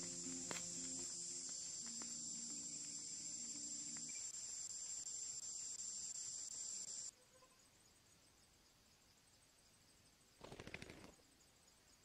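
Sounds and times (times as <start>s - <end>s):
high-pitched insect drone: 0.0s - 7.8s.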